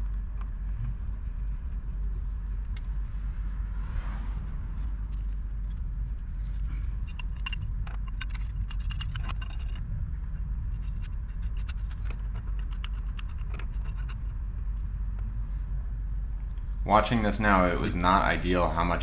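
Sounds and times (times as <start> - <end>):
low rumble: 0.0 - 19.0
pipe wrenches clinking on metal: 7.0 - 9.8.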